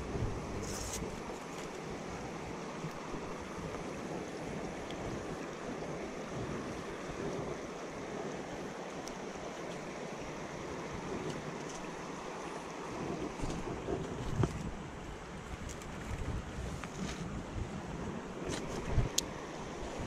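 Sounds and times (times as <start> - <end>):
creek rushing over rocks: 0.0 - 15.6.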